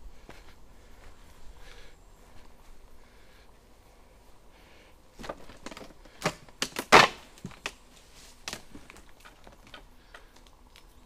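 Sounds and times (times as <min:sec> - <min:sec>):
footsteps crunching on twigs: 0:00.0 - 0:02.9, 0:05.1 - 0:11.0.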